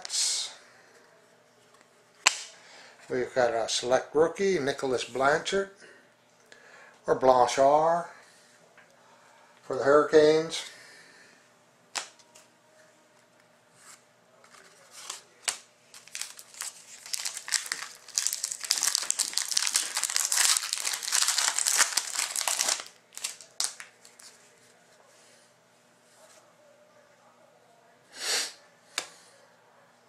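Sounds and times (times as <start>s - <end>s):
wrapper crinkling and tearing: 14.9s - 24.4s.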